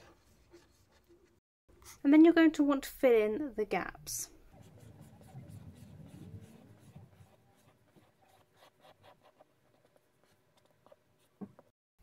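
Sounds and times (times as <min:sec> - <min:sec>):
glue nozzle scratching paper: 0:04.6 - 0:11.4.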